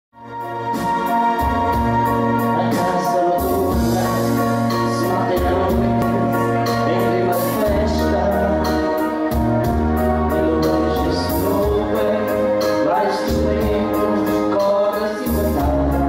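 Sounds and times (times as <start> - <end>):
keyboard chords: 0.2 - 16.0
man and woman singing: 2.5 - 6.0, 6.8 - 8.9, 10.3 - 16.0.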